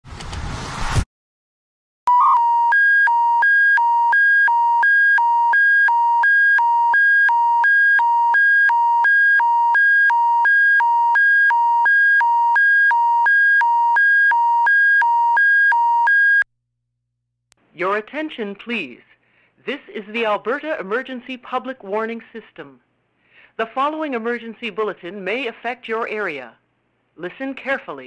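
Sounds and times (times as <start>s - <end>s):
two-tone electronic alarm: 2.1s - 16.5s.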